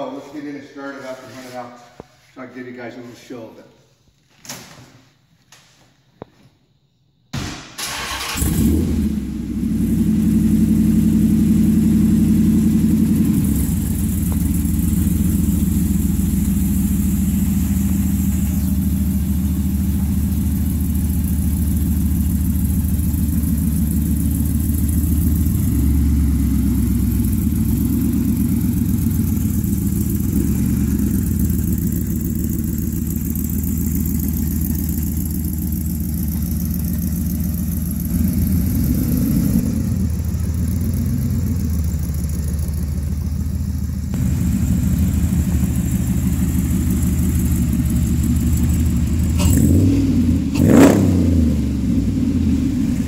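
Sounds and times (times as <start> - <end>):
engine cranking and starting: 7.7 - 9.1
low exhaust note: 8.5 - 53.0.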